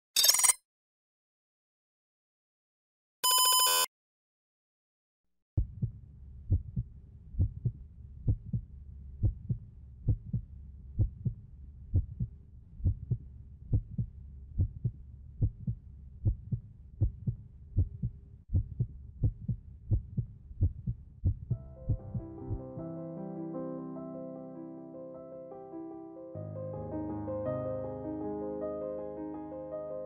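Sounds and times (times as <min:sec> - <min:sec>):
heartbeat thumps: 0:05.6 - 0:22.8.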